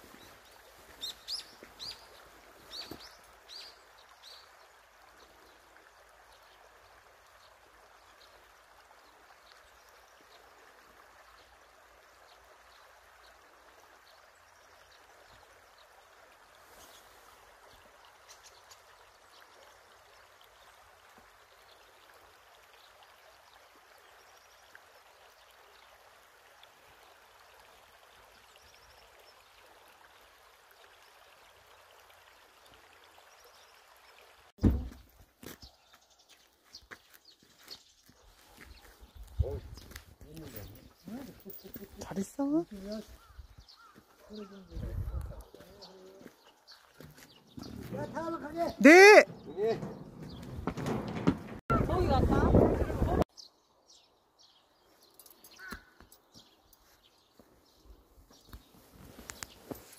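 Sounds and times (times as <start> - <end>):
stream trickling over stones: 0.0 - 50.3, 51.6 - 59.9
bird chirping: 1.0 - 4.5, 35.6 - 51.0.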